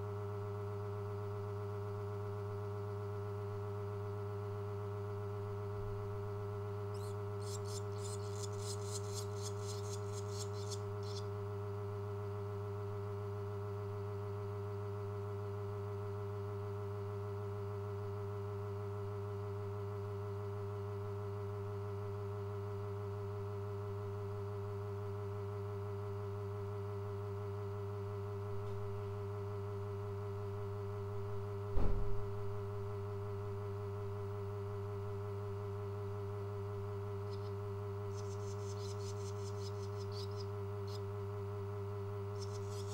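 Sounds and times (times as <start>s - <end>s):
steady electrical hum: 0.0s - 42.9s
swallow nestlings twittering: 7.0s - 11.3s, 37.3s - 41.0s, 42.4s - 42.9s
loud thump: 31.7s - 32.5s.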